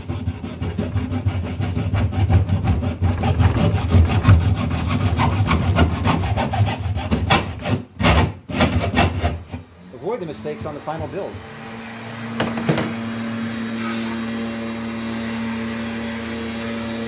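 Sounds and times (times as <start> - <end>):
hacksaw rasping through trim: 0.0 - 9.7.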